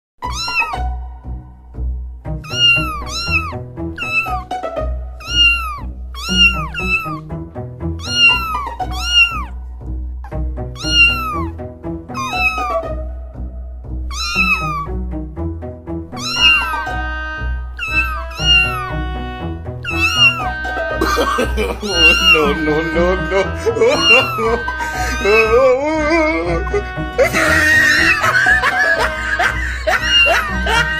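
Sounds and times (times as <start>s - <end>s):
kitten meowing: 0.2s - 0.8s, 2.4s - 4.5s, 5.2s - 7.2s, 8.0s - 9.6s, 10.7s - 11.5s, 12.1s - 12.8s, 14.1s - 14.9s, 16.2s - 17.0s, 17.8s - 19.0s, 19.8s - 23.2s, 23.8s - 26.2s, 27.4s - 28.6s, 29.9s - 30.9s
background music: 0.2s - 30.9s.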